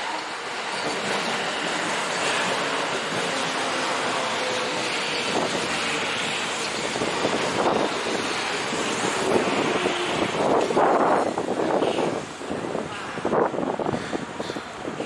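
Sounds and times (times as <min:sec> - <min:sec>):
train knocks: 0:00.0 - 0:11.4
train running past: 0:00.0 - 0:15.0
wind buffeting microphone: 0:00.6 - 0:15.0.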